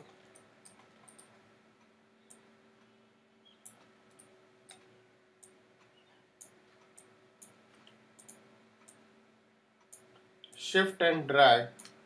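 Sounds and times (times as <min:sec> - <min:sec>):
low steady hum: 0:00.0 - 0:12.0
faint computer mouse clicks: 0:03.6 - 0:09.0.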